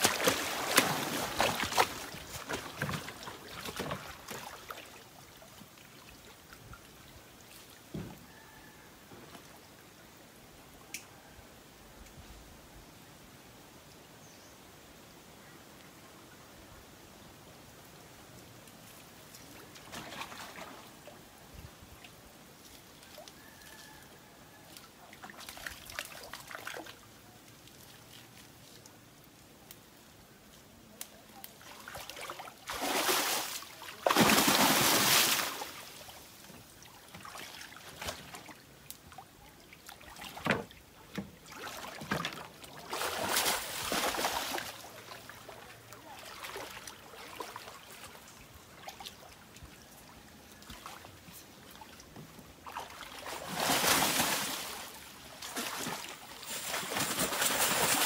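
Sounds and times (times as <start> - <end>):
water pouring off net: 0.0 - 4.7, 32.7 - 35.8, 53.2 - 58.0
water sloshing and splashing: 0.0 - 7.9, 18.9 - 21.2, 25.0 - 28.7, 31.6 - 58.0.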